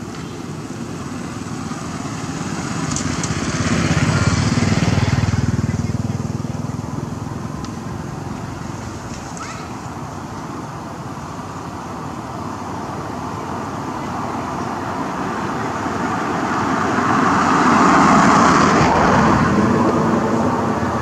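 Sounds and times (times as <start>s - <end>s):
vehicle driving past: 1.1s - 10.3s, 14.5s - 21.0s.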